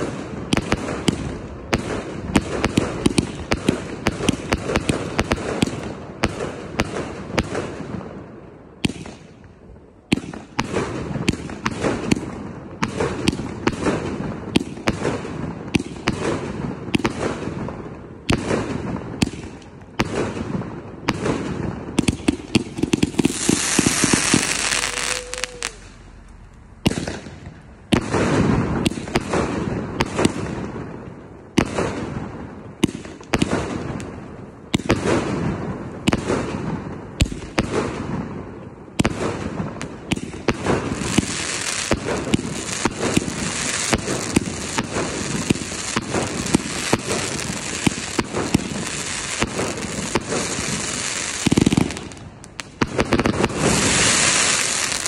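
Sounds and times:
firework shots and bursts: 0:00.0 - 0:55.0
hissing rush of sparks: 0:22.4 - 0:26.6, 0:40.8 - 0:55.0.

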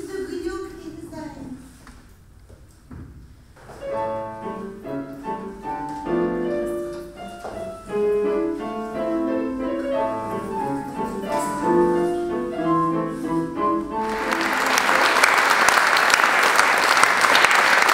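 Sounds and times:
piano music: 0:03.8 - 0:17.3.

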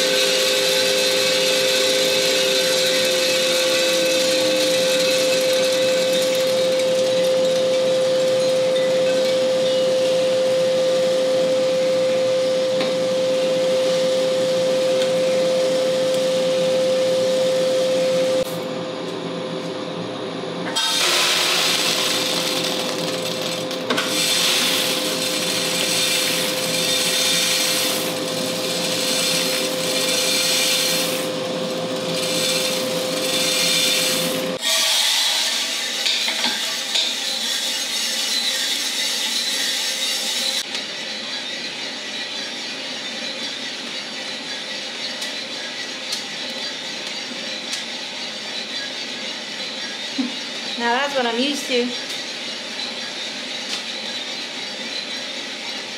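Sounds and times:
rushing rattle of beans: 0:00.0 - 0:07.0, 0:21.0 - 0:34.6
coffee beans tumbling: 0:00.0 - 0:09.5, 0:20.8 - 0:34.8
roaster motor and fan humming: 0:00.0 - 0:55.9.

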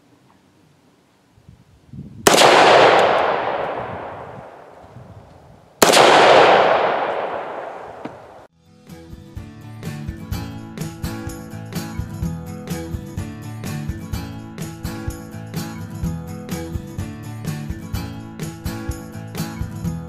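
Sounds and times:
rifle shots echoing: 0:02.3 - 0:05.0, 0:05.8 - 0:08.5
music: 0:08.5 - 0:20.0.

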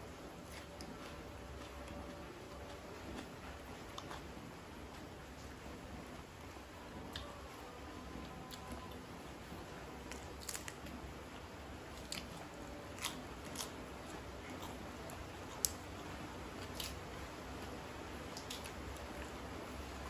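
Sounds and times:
crunchy chewing: 0:00.0 - 0:05.4, 0:10.0 - 0:20.0.

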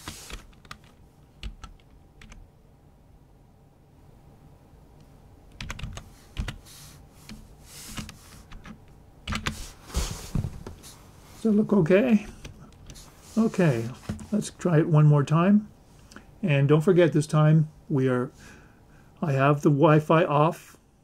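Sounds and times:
typing on computer keyboard: 0:00.3 - 0:02.4, 0:05.5 - 0:06.6.

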